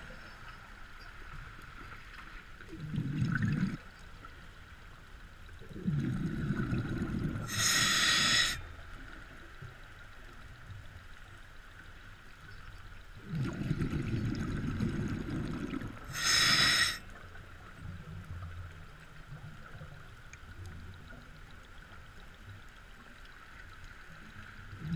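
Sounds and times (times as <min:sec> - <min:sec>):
exhaled bubbles rumbling underwater: 0:02.6 - 0:03.9, 0:05.4 - 0:09.8, 0:13.1 - 0:22.2, 0:24.4 - 0:24.9
regulator hissing on inhale: 0:07.5 - 0:08.6, 0:16.1 - 0:17.0.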